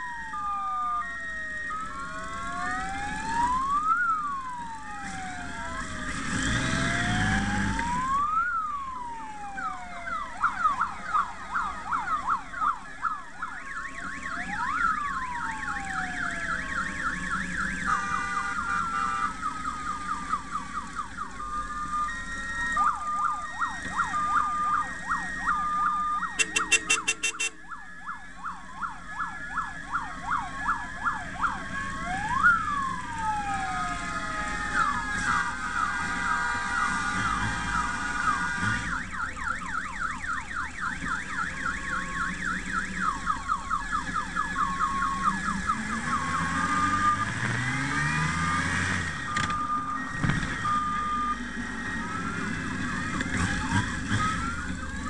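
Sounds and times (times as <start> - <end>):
electronic sirens wailing and yelping: 0.0 - 55.0
rapid pulsing siren: 0.0 - 55.0.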